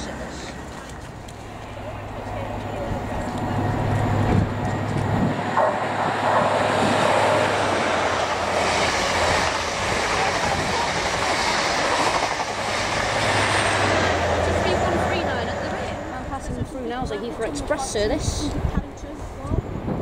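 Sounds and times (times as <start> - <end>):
train wheels clattering on rail: 3.2 - 14.2.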